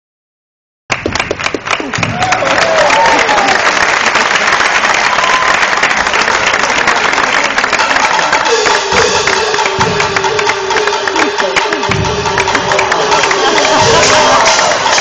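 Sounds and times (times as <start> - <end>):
drum beats: 0.9 - 3.6, 5.1 - 15.0
audience applauding: 0.9 - 15.0
held instrumental note: 7.8 - 15.0.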